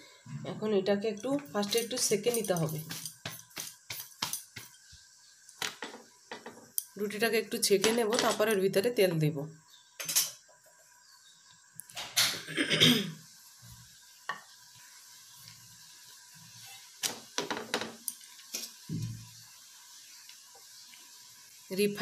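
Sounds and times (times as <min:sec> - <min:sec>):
kitchen utensils clattering: 0:01.2 - 0:03.4, 0:10.0 - 0:10.4.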